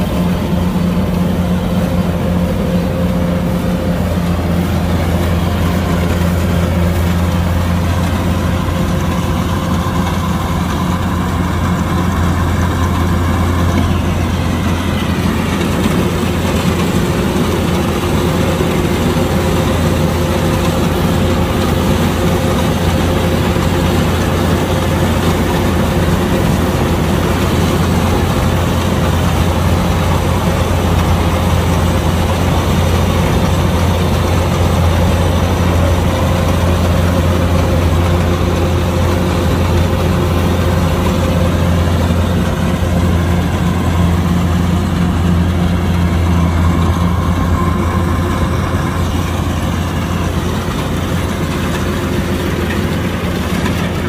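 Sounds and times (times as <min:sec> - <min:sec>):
diesel engine humming: 0:00.0 - 0:54.0.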